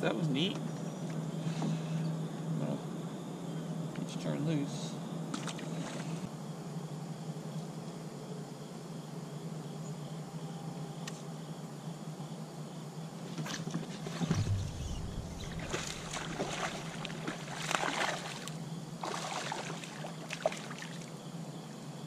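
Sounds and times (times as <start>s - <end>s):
dull thump: 14.3s - 17.4s
steady low hum: 14.3s - 19.0s
fish splashing at surface: 14.3s - 20.8s.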